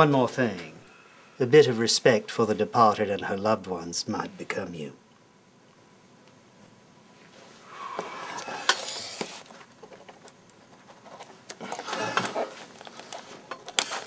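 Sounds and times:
pages rustling: 7.9s - 14.0s.

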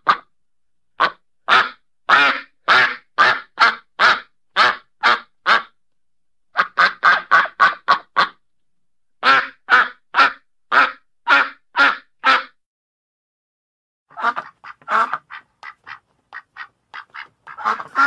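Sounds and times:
duck quacking: 0.0s - 0.3s, 1.0s - 5.8s, 6.6s - 8.4s, 9.2s - 12.6s, 14.1s - 18.0s.

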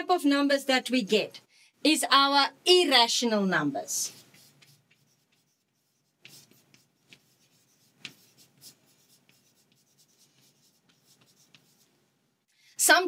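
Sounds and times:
chalk scratching on chalkboard: 4.0s - 12.0s
chalk tap: 4.1s - 11.9s.

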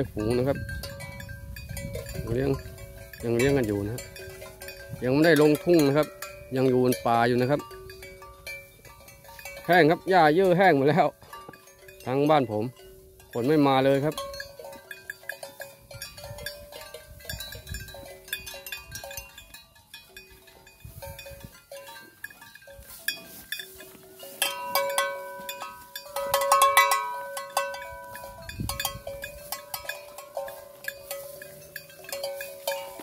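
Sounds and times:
cowbells clanking: 0.0s - 33.0s.

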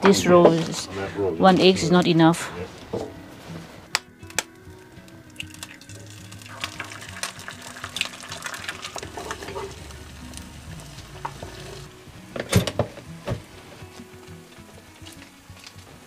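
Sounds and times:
eggs frying crackling: 3.4s - 16.0s.

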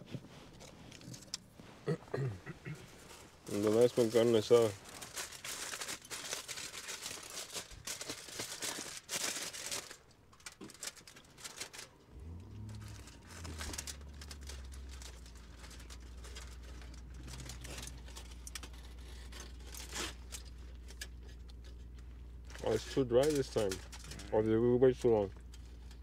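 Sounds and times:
food wrapping crinkling: 0.0s - 1.8s, 2.9s - 26.0s
low hum: 11.6s - 26.0s.

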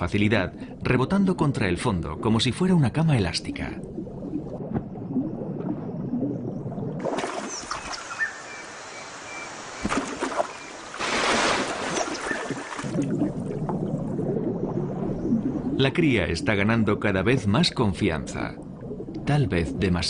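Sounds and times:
muffled underwater rumble: 0.0s - 7.0s, 12.9s - 20.0s
water noise at surface: 0.0s - 20.0s
water splashing: 1.4s - 20.0s.

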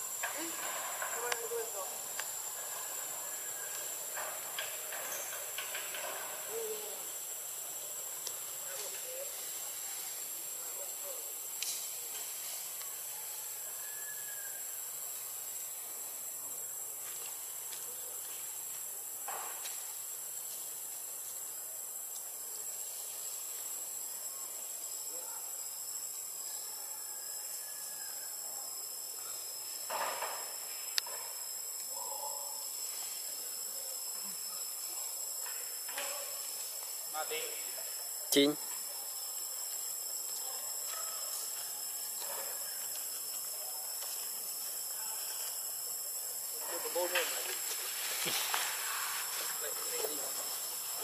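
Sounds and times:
steady high hiss: 0.0s - 26.8s, 27.4s - 51.0s
high-pitched insect drone: 0.0s - 51.0s
lower insect tone: 0.0s - 51.0s
outdoor hiss: 28.5s - 51.0s.

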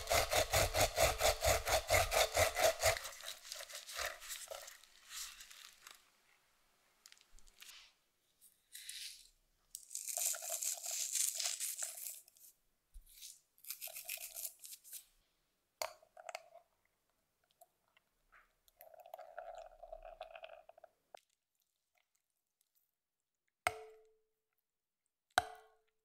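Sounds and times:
salt crunching in glass bowl: 2.9s - 6.1s, 8.7s - 12.5s, 13.1s - 15.1s.

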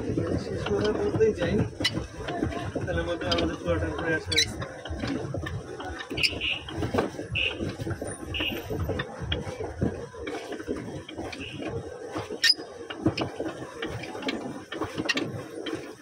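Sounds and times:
paddle wheel churning water: 0.0s - 16.0s.

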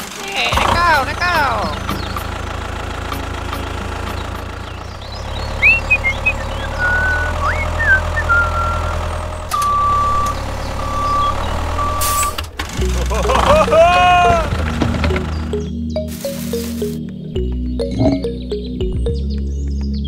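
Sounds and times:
tractor engine rumbling: 0.0s - 19.0s
short chirping glides: 5.5s - 8.9s.

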